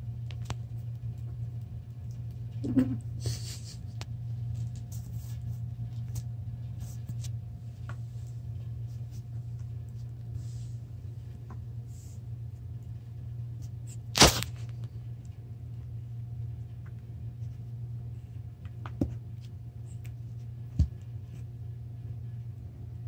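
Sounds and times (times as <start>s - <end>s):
steady low hum: 0.0s - 23.0s
cats scuffing and rustling: 0.3s - 12.6s.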